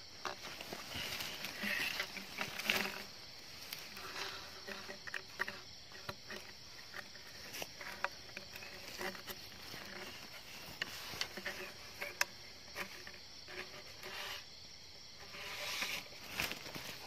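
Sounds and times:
night insects droning: 0:00.0 - 0:17.0
plastic sack crinkling and rustling: 0:16.1 - 0:17.0.

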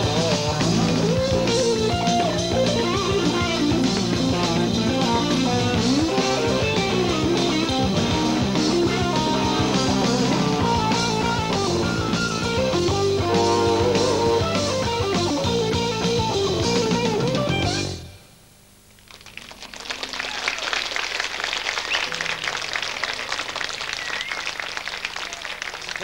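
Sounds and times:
live rock band playing: 0:00.0 - 0:18.1, 0:21.8 - 0:25.0
audience applauding: 0:19.0 - 0:26.0.

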